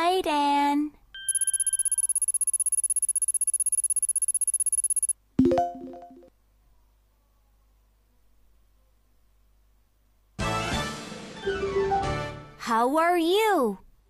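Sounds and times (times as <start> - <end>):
rapid timer ticking: 1.3 - 5.2.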